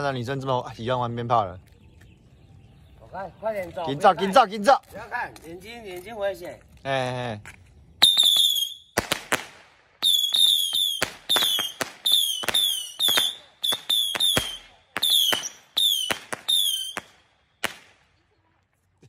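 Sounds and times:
whistling rockets firing: 8.0s - 18.2s
firework crack: 8.0s - 18.3s.

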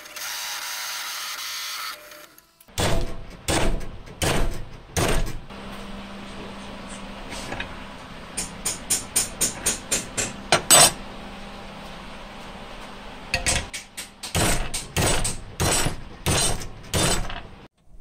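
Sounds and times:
hammer striking steel: 8.3s - 11.0s, 13.3s - 17.3s.

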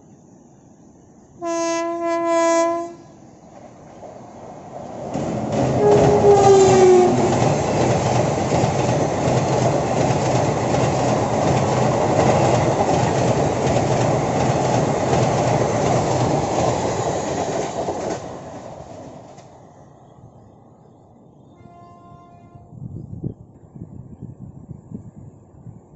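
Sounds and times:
locomotive horn blast: 1.4s - 3.2s, 5.8s - 7.3s, 21.6s - 22.8s
train wheels clattering on track: 3.5s - 19.7s.

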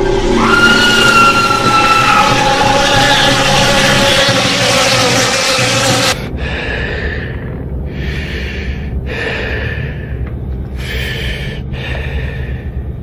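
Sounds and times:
loud noisy burst: 0.0s - 6.2s
low steady hum: 1.4s - 13.0s
person breathing heavily: 6.2s - 13.0s.

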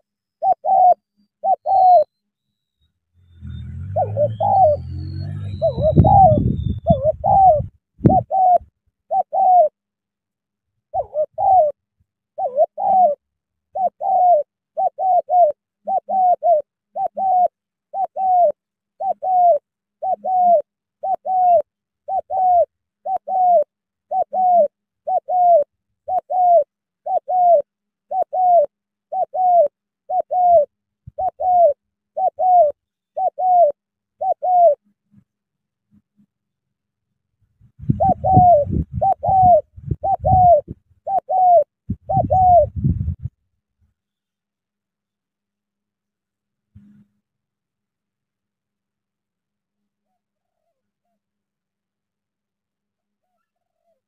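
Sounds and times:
doves cooing: 0.0s - 2.1s, 3.3s - 9.8s, 10.9s - 11.8s, 12.4s - 34.8s, 37.8s - 43.3s.

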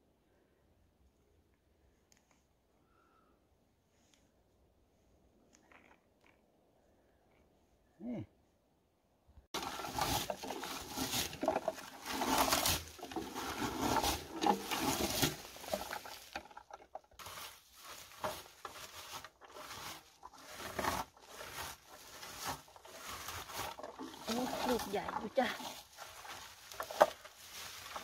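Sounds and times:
rake rustling through bushes: 9.6s - 28.0s.

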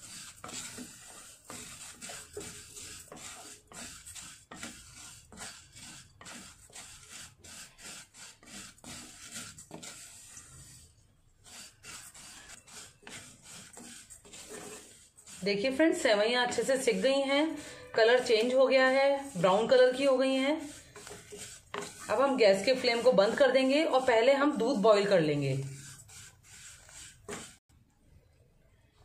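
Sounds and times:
wooden spatula scraping a pan: 0.0s - 27.7s.

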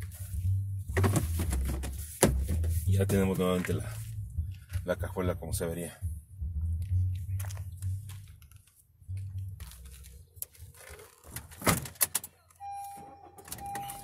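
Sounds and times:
car warning chime: 12.6s - 14.0s.

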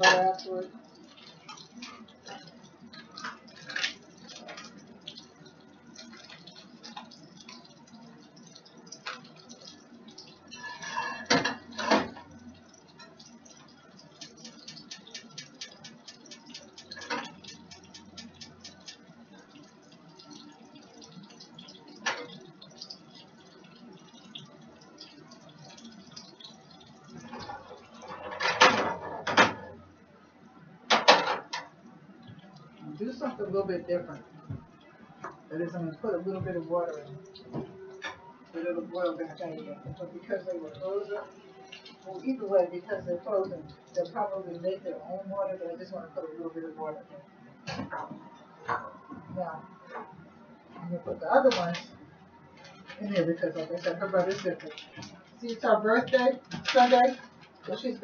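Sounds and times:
utensils and cookware clinking: 0.0s - 29.8s.

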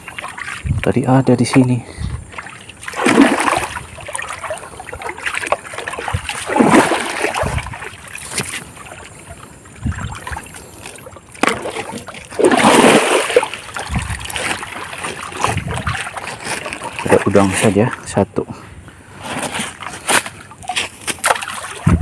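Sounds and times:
river water splashing: 0.0s - 18.0s, 19.2s - 22.0s.

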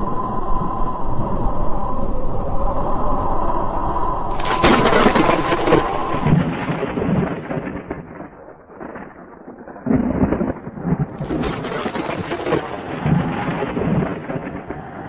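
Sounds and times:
thunder crack rumbling: 4.3s - 15.0s.

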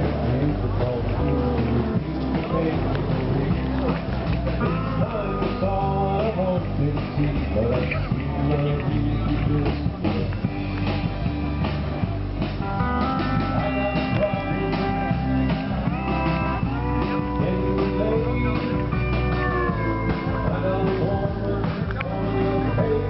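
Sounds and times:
guitar music with steady beat: 0.0s - 23.0s.

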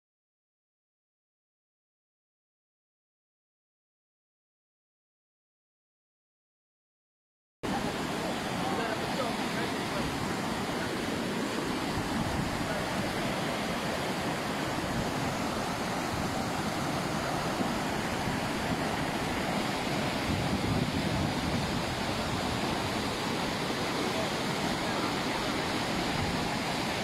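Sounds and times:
flood water rushing: 7.6s - 27.0s.

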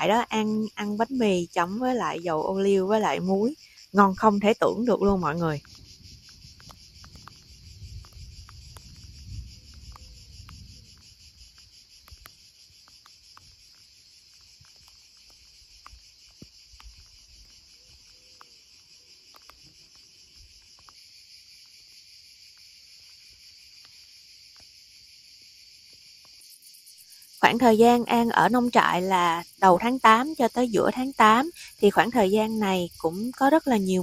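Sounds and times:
insects shrilling: 0.0s - 34.0s
faint clicks: 5.6s - 21.0s.

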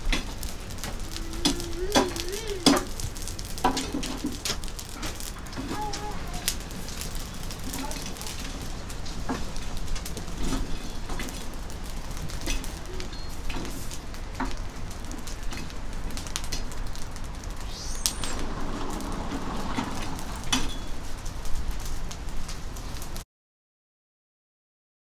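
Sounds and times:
meat sizzling on charcoal grill: 0.0s - 23.2s
short high chirp: 17.6s - 18.5s.

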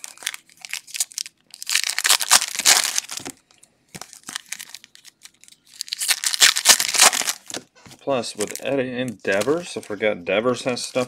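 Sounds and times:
foil wrappers crinkling and tearing: 0.0s - 3.3s, 4.0s - 7.6s.

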